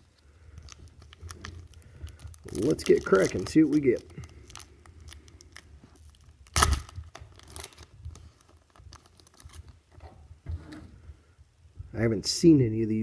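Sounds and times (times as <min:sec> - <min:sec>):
wrapper ripping: 0:00.0 - 0:09.9
wrapper crinkling and rustling: 0:00.0 - 0:10.0.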